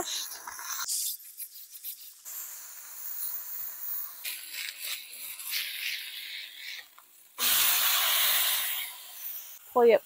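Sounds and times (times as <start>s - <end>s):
burger patty sizzling on griddle: 2.2s - 9.6s.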